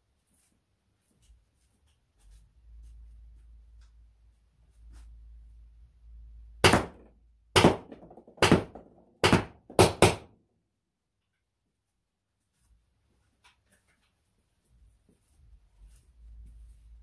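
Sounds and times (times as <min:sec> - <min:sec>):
balls smacking cardboard box: 0:06.6 - 0:10.3.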